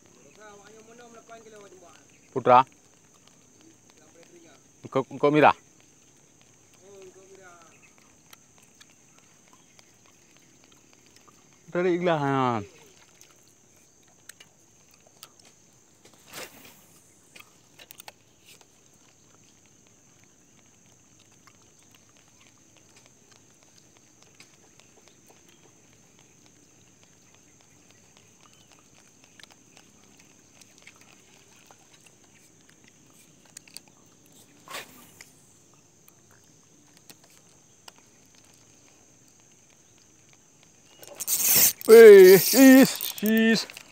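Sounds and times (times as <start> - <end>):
rustle: 0.0 - 43.9
faint high hiss: 15.6 - 18.6, 32.0 - 36.2, 36.9 - 43.9
fishing reel clicks: 41.0 - 43.9.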